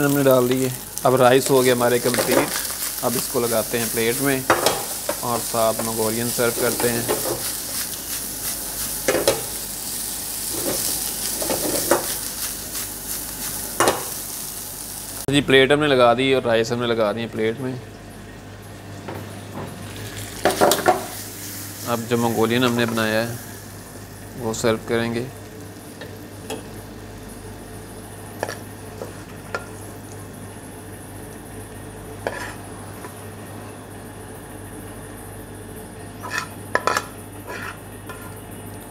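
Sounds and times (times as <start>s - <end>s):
rice sizzling in a wok: 0.0s - 15.3s, 19.8s - 33.4s
kitchen hiss and low hum: 0.0s - 38.9s
spatula scraping and knocking wok: 3.8s - 9.6s, 10.5s - 14.2s, 32.2s - 33.2s, 36.2s - 38.4s.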